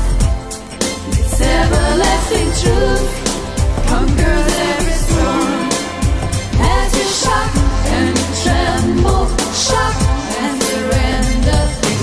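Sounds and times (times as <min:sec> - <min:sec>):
steady bass line: 0:01.0 - 0:10.2
person singing: 0:01.1 - 0:12.0.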